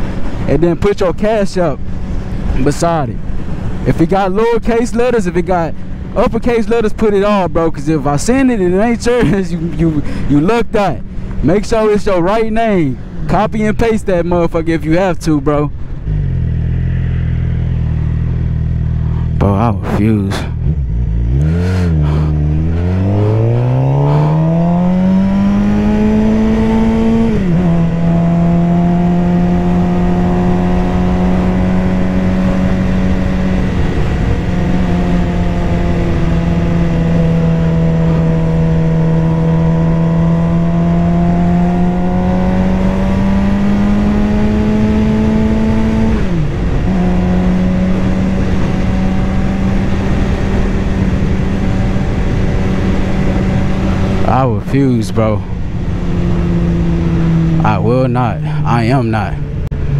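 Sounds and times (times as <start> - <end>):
motorcycle engine revving: 15.9 - 19.7, 20.4 - 59.9.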